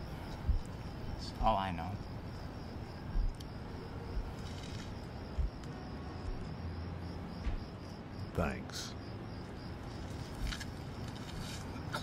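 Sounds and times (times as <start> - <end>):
crickets chirping: 0.0 - 12.0
dull low thumps: 0.4 - 0.7, 3.1 - 3.4, 5.2 - 5.6, 7.3 - 7.8.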